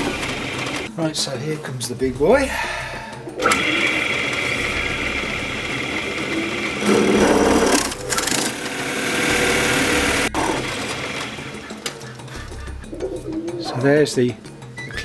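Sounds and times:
electric drill cutting wood: 0.0 - 0.9, 3.4 - 11.8.

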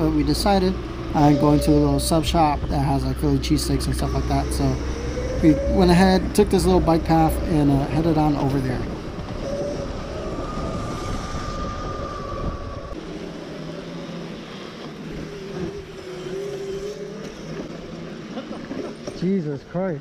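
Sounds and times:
lower whine: 0.0 - 19.1
rumble of tyres on wooden planks: 7.9 - 19.6.

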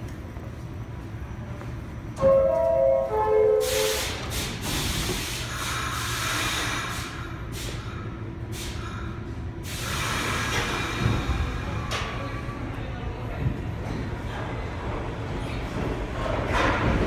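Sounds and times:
low train hum: 0.0 - 17.0
train compressed air hissing: 3.5 - 11.9.

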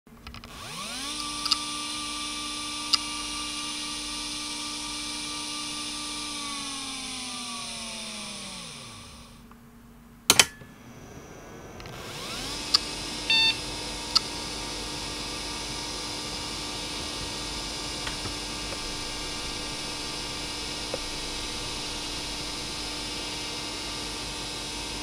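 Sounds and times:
hard drive clicks: 0.3 - 6.9, 15.3 - 23.9
hard drive spinning whine: 0.3 - 25.0
short beep: 13.3 - 13.6.

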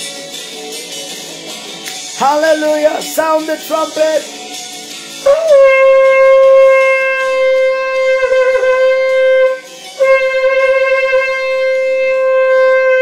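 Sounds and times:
shofar blasts: 5.2 - 13.0.

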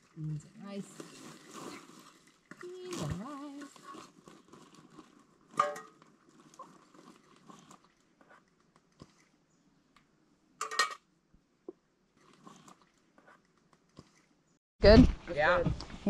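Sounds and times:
cookware and utensils clinking: 5.5 - 6.0, 10.6 - 11.0.

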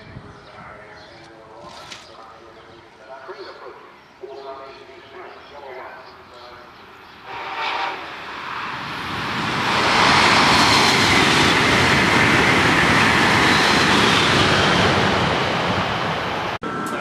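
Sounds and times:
train wheels rushing on rail: 7.1 - 17.0.

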